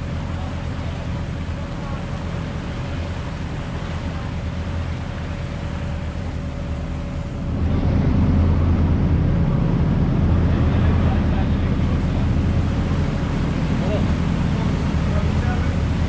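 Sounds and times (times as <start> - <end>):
boat engine running: 0.0 - 16.0
wake rushing: 0.0 - 16.0.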